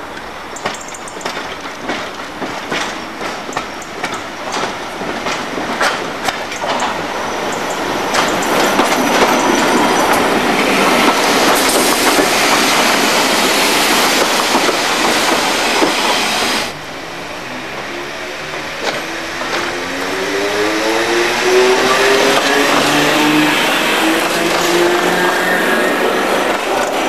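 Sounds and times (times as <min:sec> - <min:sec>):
train rushing past: 0:00.0 - 0:27.0
train wheels clicking on rail joints: 0:00.1 - 0:16.7, 0:17.7 - 0:27.0.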